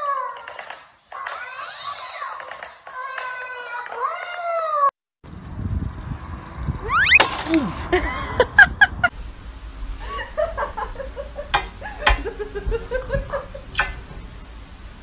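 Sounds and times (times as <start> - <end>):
high squeaks: 6.9 - 7.9
person laughing: 6.9 - 9.1, 10.0 - 13.8.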